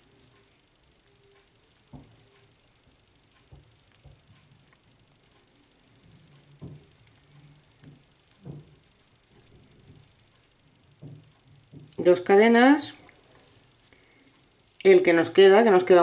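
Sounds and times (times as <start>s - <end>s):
yarn and crochet hook rustling: 0.0s - 16.0s
soft thumps: 6.0s - 12.1s.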